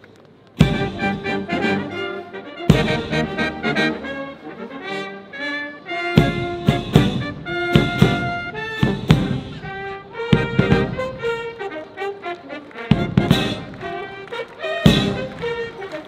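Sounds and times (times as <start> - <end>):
drum and cymbal hits: 0.6 - 1.5, 2.7 - 3.5, 6.2 - 11.3, 12.9 - 14.0, 14.8 - 15.6
brass holding chords: 0.6 - 16.0.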